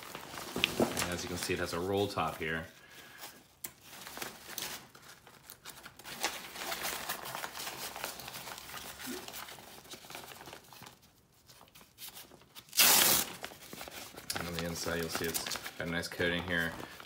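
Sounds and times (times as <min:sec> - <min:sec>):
fabric crinkling and rustling: 0:00.0 - 0:02.5, 0:13.4 - 0:17.0.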